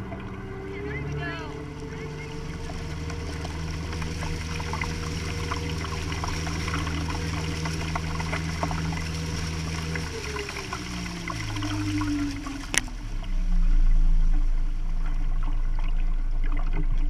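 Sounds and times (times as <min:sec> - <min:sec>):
boat motor humming: 0:00.0 - 0:17.0
water rushing along boat hull: 0:00.0 - 0:17.0.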